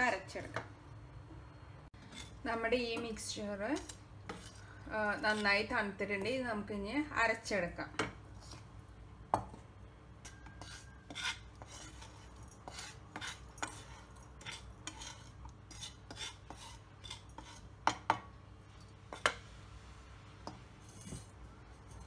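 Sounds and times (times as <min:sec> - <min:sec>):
wooden spoon scraping pan: 0:02.0 - 0:06.2, 0:08.3 - 0:08.7, 0:10.2 - 0:18.2.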